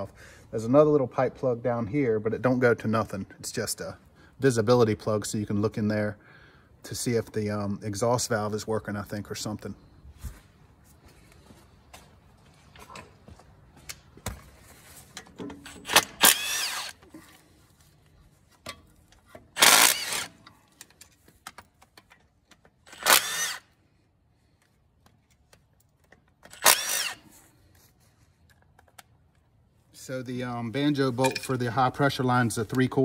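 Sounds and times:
cordless power tool whining: 0:15.7 - 0:17.1, 0:19.5 - 0:20.6, 0:22.9 - 0:23.8, 0:26.4 - 0:27.4.

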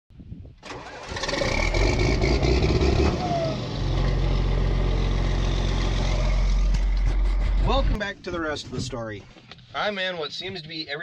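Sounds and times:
tractor diesel engine starting and idling: 0:00.6 - 0:07.9.

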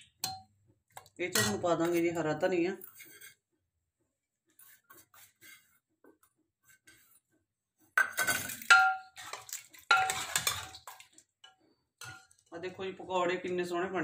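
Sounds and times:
ladle clanking on metal pot: 0:01.2 - 0:02.1, 0:08.0 - 0:12.4.

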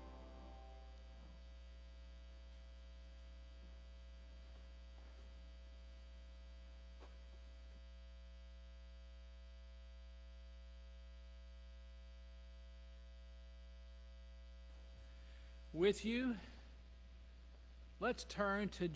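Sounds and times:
piano notes: 0:00.0 - 0:01.1
electrical mains hum: 0:00.0 - 0:18.9.

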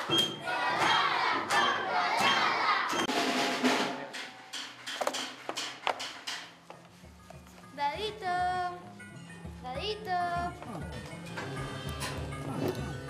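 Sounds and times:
group shouting: 0:00.4 - 0:03.0.

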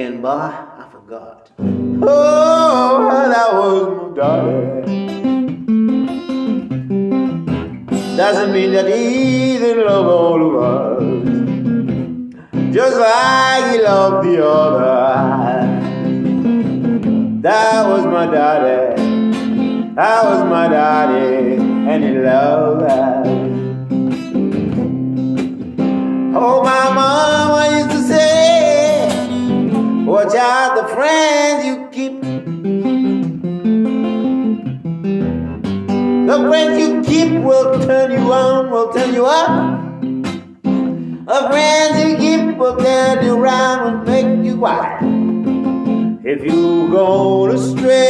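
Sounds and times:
man singing: 0:00.0 - 0:05.3, 0:08.0 - 0:11.7, 0:12.3 - 0:23.7, 0:26.3 - 0:32.5, 0:36.2 - 0:40.0, 0:41.0 - 0:48.0
acoustic guitar strumming: 0:00.1 - 0:48.0.

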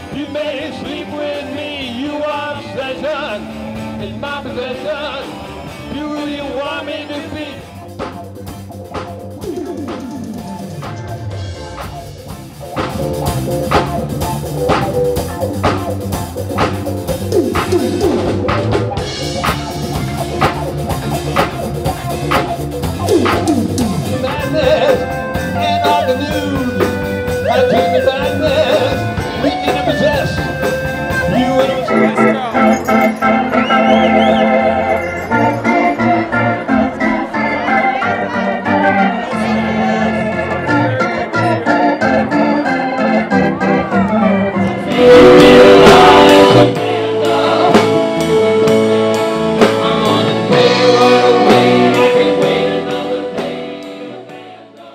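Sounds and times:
held organ chords: 0:00.0 - 0:54.9
live rock band playing: 0:00.0 - 0:54.9
steady drum beat: 0:07.2 - 0:34.4, 0:44.8 - 0:54.5.

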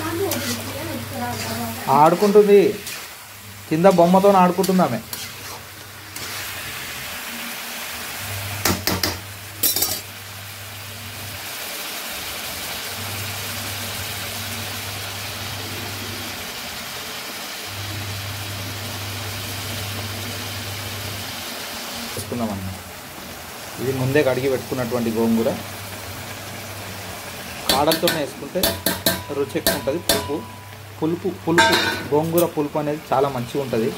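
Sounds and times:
chicken sizzling in pan: 0:00.0 - 0:33.9
metal ladle clinking against pan: 0:27.7 - 0:30.6.

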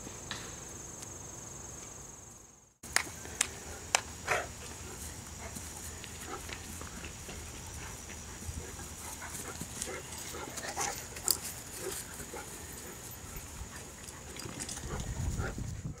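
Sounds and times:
dog noises: 0:03.2 - 0:16.0.

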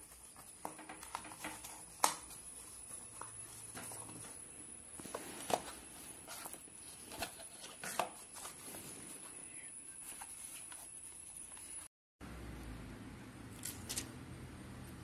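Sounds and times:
cardboard rustling: 0:00.0 - 0:11.8.

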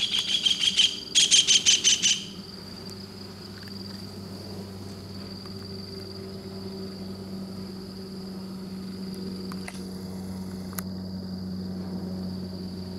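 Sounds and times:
insect trilling: 0:00.0 - 0:04.1
steady low hum: 0:00.0 - 0:12.9.

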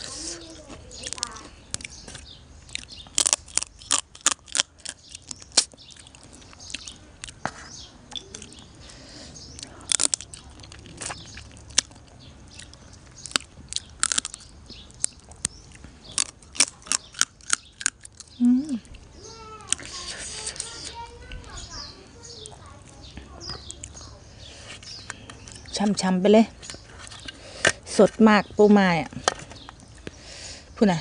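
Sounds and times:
crab shell crunching while chewed: 0:01.0 - 0:08.7, 0:09.6 - 0:19.0.

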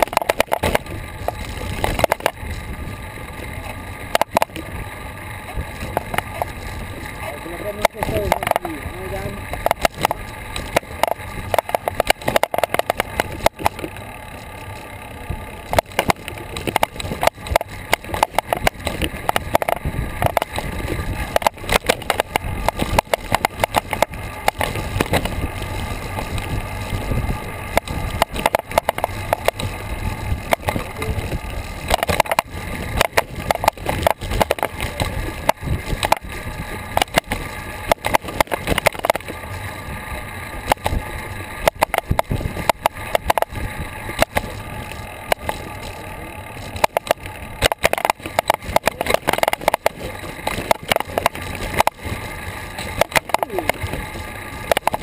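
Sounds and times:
bike knocks and rattles: 0:00.0 - 0:04.8, 0:05.4 - 0:39.5, 0:40.6 - 0:55.0
tyres rumbling on pavement: 0:00.0 - 0:55.0
wind noise: 0:15.2 - 0:55.0.

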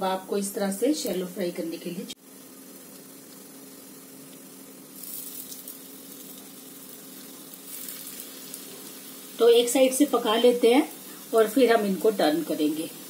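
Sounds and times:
kebabs sizzling in oil: 0:00.0 - 0:13.0.

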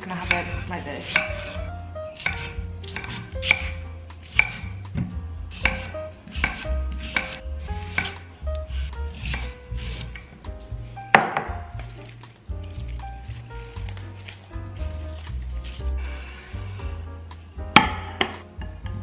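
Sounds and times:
knife chopping on wooden board: 0:00.2 - 0:08.3, 0:11.1 - 0:12.1.

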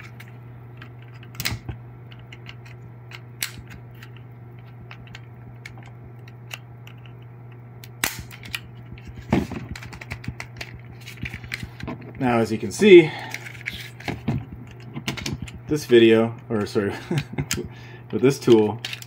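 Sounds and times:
plastic ticking and handling: 0:08.4 - 0:12.5, 0:13.3 - 0:19.0.

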